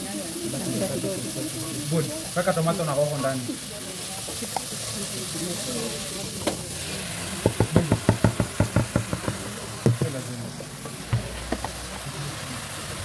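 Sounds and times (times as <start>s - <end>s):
tomatoes knocking into metal pot: 7.4s - 10.2s, 11.0s - 11.9s.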